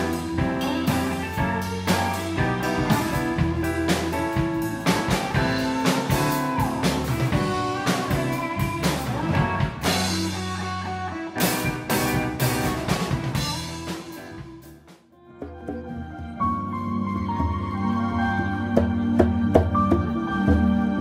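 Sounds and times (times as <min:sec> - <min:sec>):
live band playing: 0:00.0 - 0:21.0.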